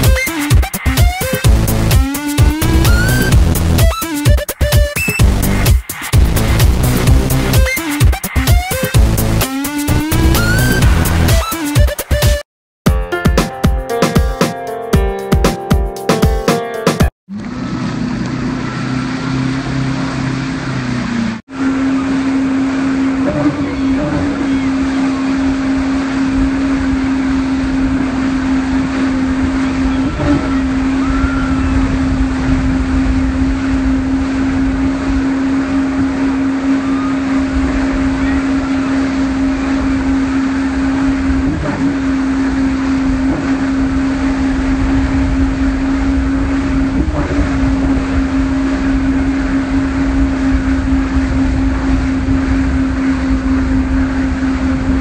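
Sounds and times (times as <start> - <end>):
motorboat engine drone: 0.0 - 12.2, 17.3 - 55.0
rushing wash of the wake: 17.4 - 55.0
wind rumbling on microphone: 23.2 - 55.0.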